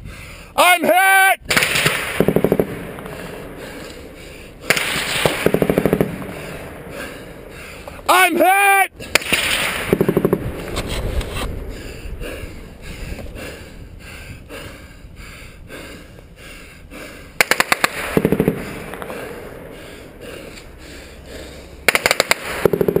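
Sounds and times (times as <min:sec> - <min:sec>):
automatic gunfire bursts: 0:17.4 - 0:18.7, 0:21.9 - 0:23.0.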